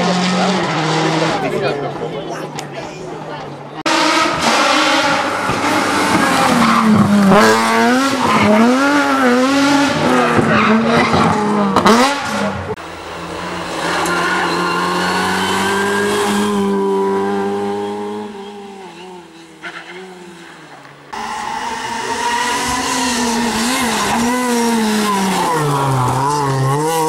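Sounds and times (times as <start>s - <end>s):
rally car engine revving: 0.0s - 2.6s, 3.8s - 27.0s.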